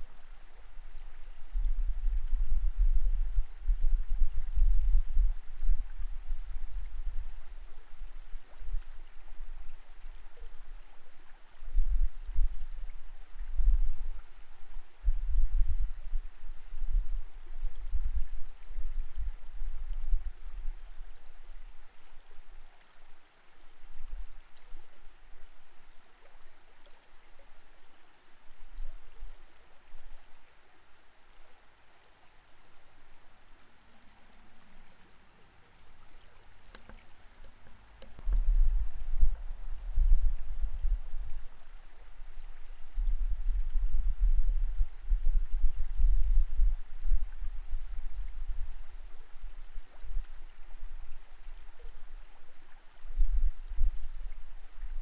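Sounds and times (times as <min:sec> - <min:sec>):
low rumbling water surges: 0:00.0 - 0:55.0
muffled underwater creek flow: 0:00.0 - 0:55.0.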